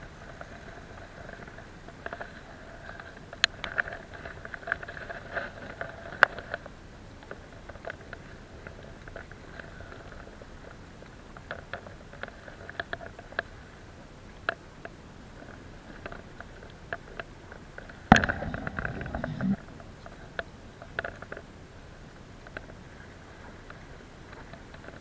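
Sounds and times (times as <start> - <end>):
small clicks and taps: 1.3 - 13.5
rumbling: 18.0 - 20.4.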